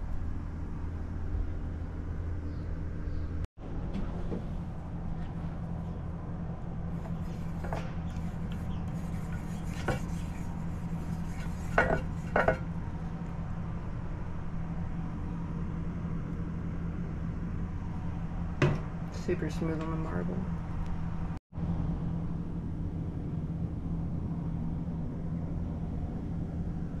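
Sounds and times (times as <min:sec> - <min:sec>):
low hum: 0:00.0 - 0:27.0.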